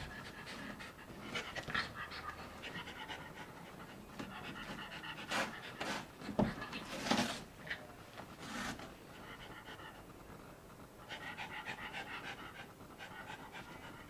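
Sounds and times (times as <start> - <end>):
dog panting quickly: 0.0 - 6.8, 11.0 - 14.0.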